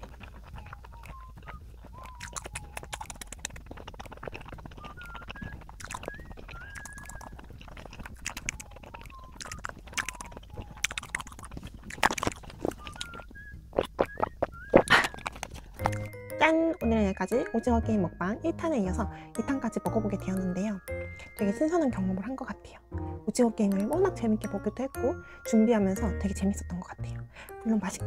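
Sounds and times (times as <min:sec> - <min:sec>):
crisp clicks: 0:00.0 - 0:16.4
mouth chewing sounds: 0:00.0 - 0:28.0
soft background music: 0:00.0 - 0:28.0.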